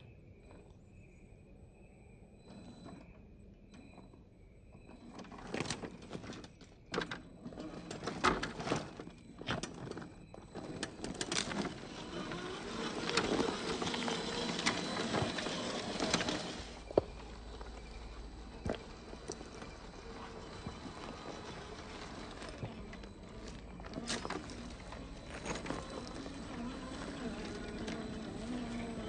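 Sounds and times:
gravel crunching: 0:07.6 - 0:29.0
small electric motor whir: 0:10.5 - 0:29.0.

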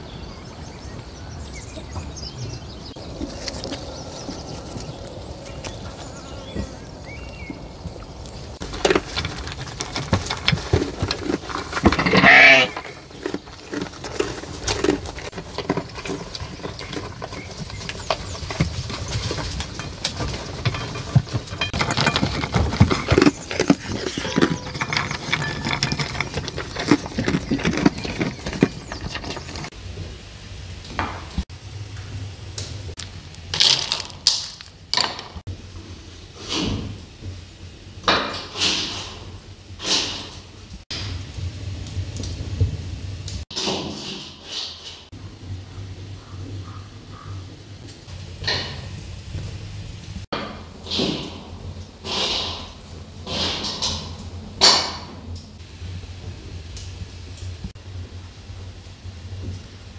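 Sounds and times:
goat crunching feed pellets: 0:03.0 - 0:06.2, 0:08.2 - 0:29.7, 0:33.0 - 0:35.3.

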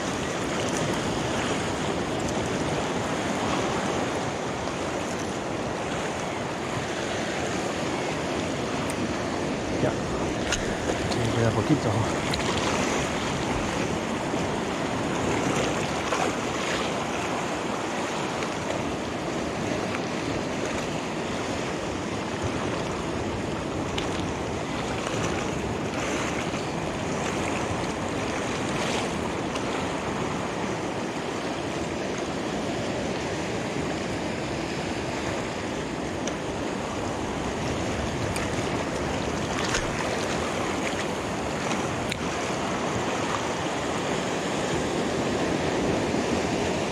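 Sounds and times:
surf washing over rocks: 0:00.0 - 0:46.9
wind on microphone: 0:00.0 - 0:46.9.

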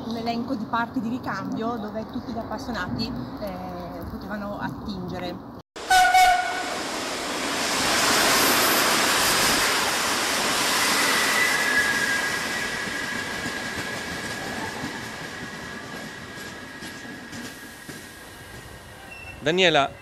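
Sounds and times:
train rushing past: 0:05.8 - 0:20.0
high-pitched rail squeal: 0:07.8 - 0:16.8, 0:17.5 - 0:20.0.

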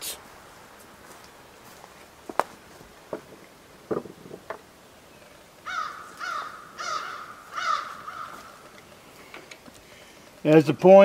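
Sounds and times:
crow cawing: 0:05.6 - 0:08.7
faint clicks: 0:08.0 - 0:10.6.

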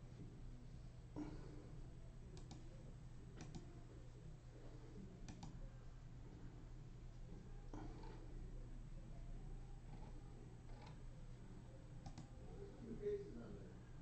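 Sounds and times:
low steady hum: 0:00.0 - 0:14.0
faint clicks: 0:02.3 - 0:02.7, 0:03.4 - 0:03.7, 0:05.2 - 0:05.6, 0:12.0 - 0:12.3.

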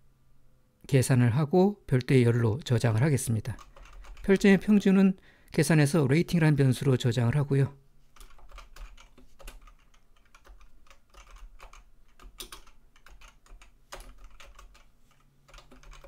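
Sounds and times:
keyboard typing clicks: 0:08.2 - 0:16.0.

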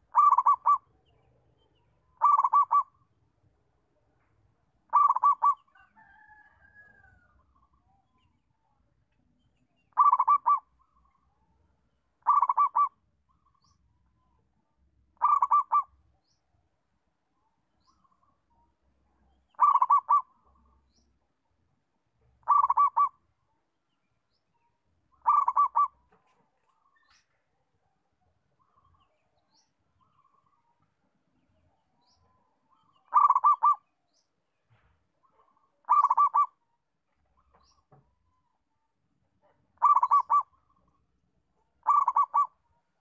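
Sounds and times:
dove cooing: 0:00.0 - 0:00.9, 0:02.2 - 0:03.0, 0:04.9 - 0:06.4, 0:09.9 - 0:10.7, 0:12.2 - 0:13.0, 0:15.2 - 0:15.9, 0:19.5 - 0:20.4, 0:22.4 - 0:23.2, 0:25.2 - 0:26.0, 0:33.1 - 0:33.8, 0:35.3 - 0:36.6, 0:39.8 - 0:40.6, 0:41.8 - 0:42.6.

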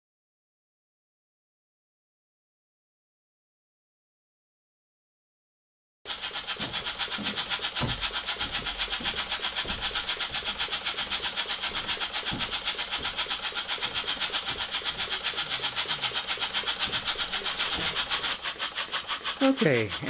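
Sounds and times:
model steam engine chuffing: 0:06.1 - 0:20.0.

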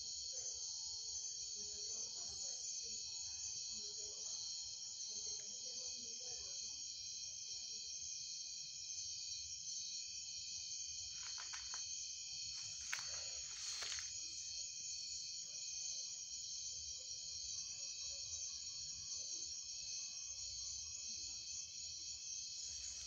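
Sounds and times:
night insects chorus: 0:00.0 - 0:23.0
brief rustles or clicks: 0:11.2 - 0:11.8.

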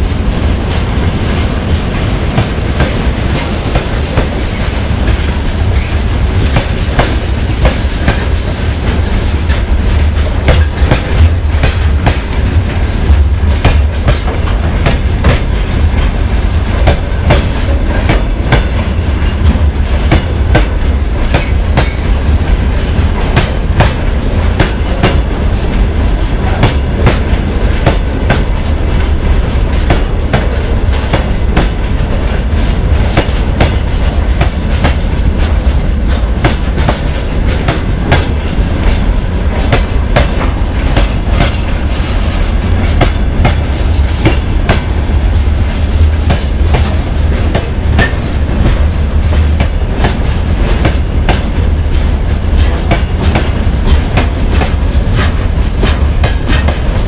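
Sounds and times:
freight train rumbling: 0:00.0 - 0:57.0.

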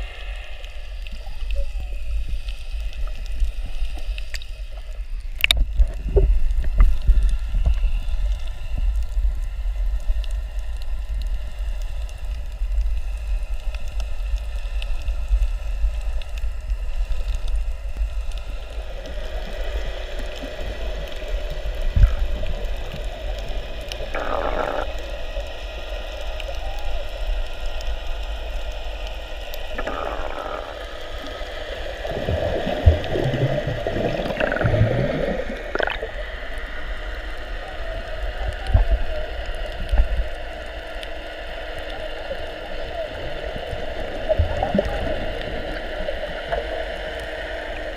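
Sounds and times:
underwater rumble of moving water: 0:00.0 - 0:47.9
bubbles gurgling underwater: 0:05.4 - 0:07.9, 0:21.6 - 0:25.1, 0:29.7 - 0:36.3, 0:43.1 - 0:46.8.

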